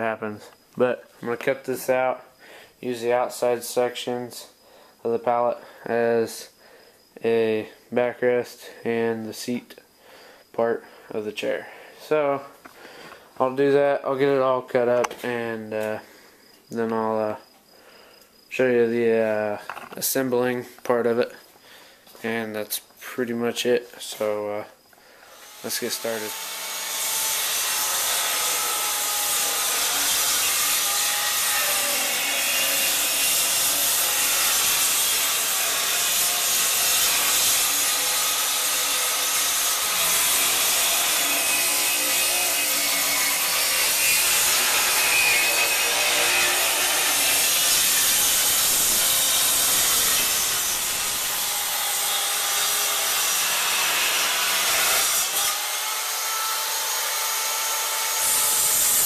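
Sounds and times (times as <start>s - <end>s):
circular saw cutting wood: 25.3s - 59.0s.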